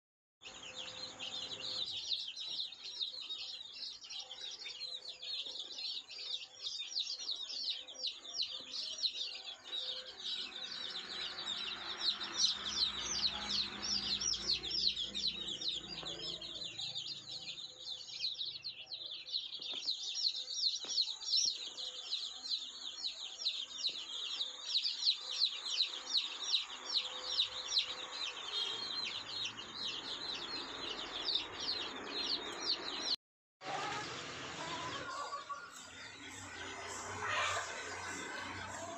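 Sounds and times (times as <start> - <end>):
chicks peeping: 0.4 - 38.9.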